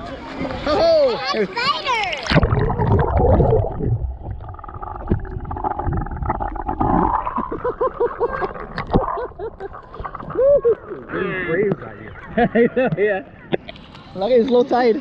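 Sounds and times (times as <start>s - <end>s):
underwater rumbling and gurgling: 2.3s - 11.1s.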